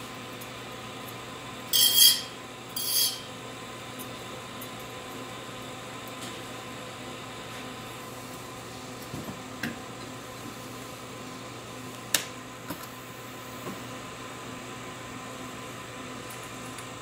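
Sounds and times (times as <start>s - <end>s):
test equipment humming: 1.4s - 3.6s.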